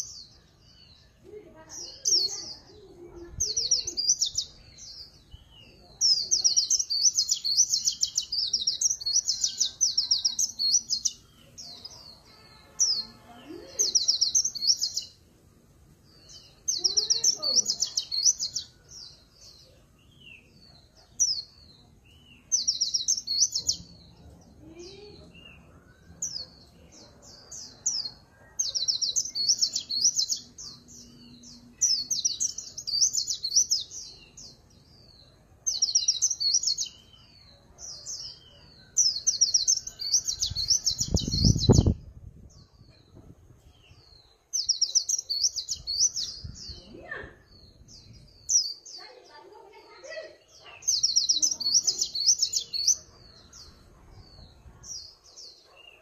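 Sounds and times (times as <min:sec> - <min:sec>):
caged bird high twittering: 0:37.9 - 0:42.1.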